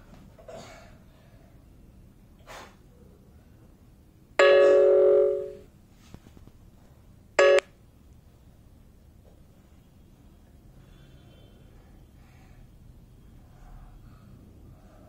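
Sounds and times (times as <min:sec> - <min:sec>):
bell-like ringing tones: 0:04.4 - 0:05.7, 0:07.4 - 0:07.6.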